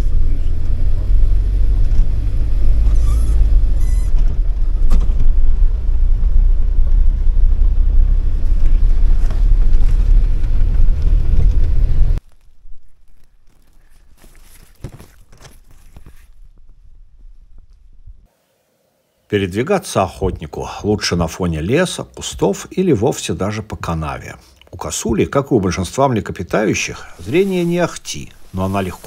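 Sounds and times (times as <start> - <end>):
off-road vehicle engine rumble: 0.0 - 12.3
faint clicks and rustles: 8.4 - 18.3.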